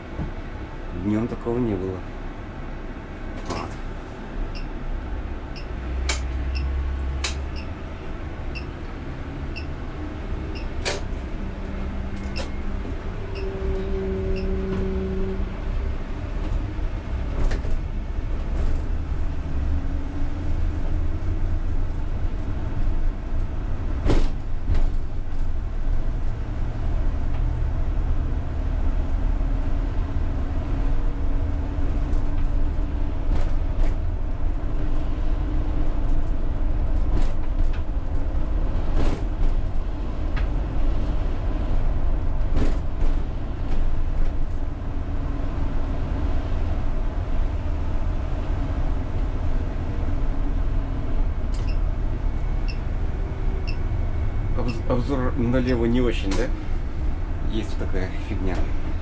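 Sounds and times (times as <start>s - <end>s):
trolleybus running rumble: 0.0s - 59.0s.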